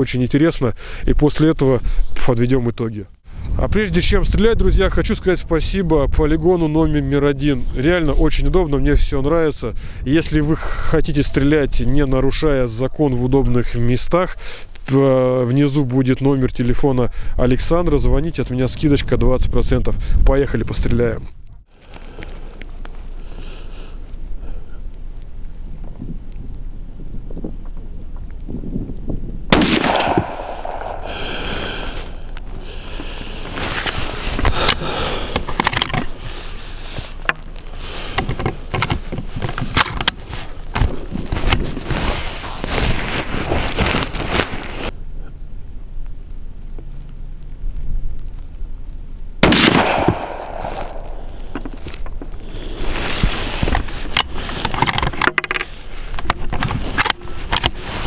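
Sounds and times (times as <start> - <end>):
wind buffeting microphone: 3.3 - 7.0, 25.8 - 32.8
rifle shots: 29.5 - 31.5, 49.4 - 51.4.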